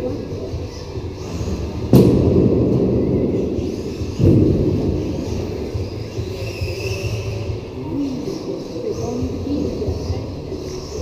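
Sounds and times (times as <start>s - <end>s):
low rumble in a hall: 0.0s - 11.0s
sudden thump: 1.9s - 5.6s.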